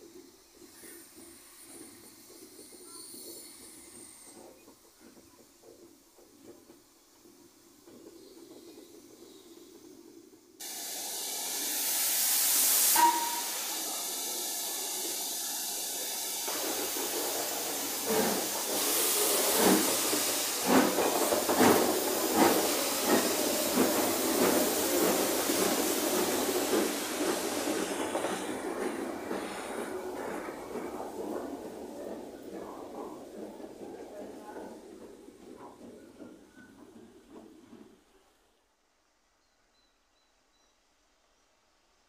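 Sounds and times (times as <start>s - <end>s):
loud hiss of steam: 0.0s - 5.6s, 6.9s - 35.0s
steam locomotive exhaust chuffs: 0.0s - 38.4s
steam locomotive whistle: 12.8s - 14.1s.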